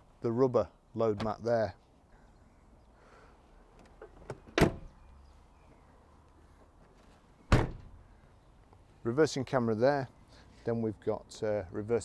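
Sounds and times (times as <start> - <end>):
tailgate clunk: 4.0 - 4.9, 7.5 - 8.0
tailgate slamming: 4.2 - 4.9, 7.5 - 8.0.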